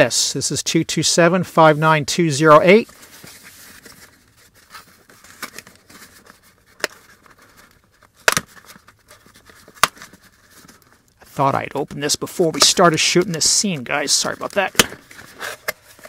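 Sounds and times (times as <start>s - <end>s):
cardboard and tape rustling: 2.7s - 16.0s
tape snapping: 8.2s - 8.6s.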